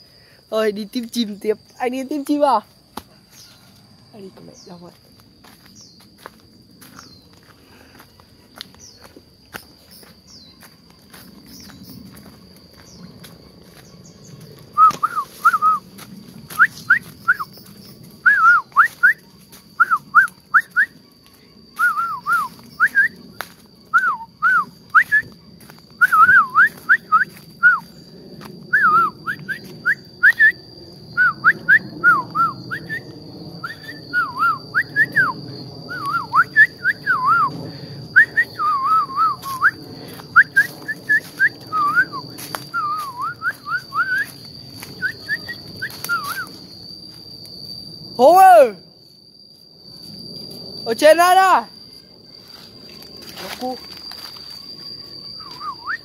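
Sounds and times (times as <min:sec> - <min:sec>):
insects high tone: 0:00.0 - 0:56.0
loud whistled calls: 0:13.9 - 0:21.0, 0:21.8 - 0:23.2, 0:26.0 - 0:28.1, 0:28.7 - 0:46.7, 0:53.5 - 0:56.0.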